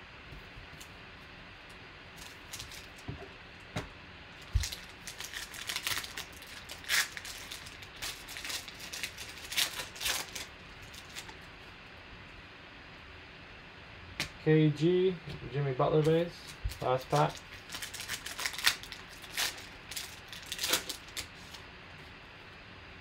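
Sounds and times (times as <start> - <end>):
foil wrapper crinkling and tearing: 2.2 - 3.1, 4.4 - 11.4, 16.0 - 21.6.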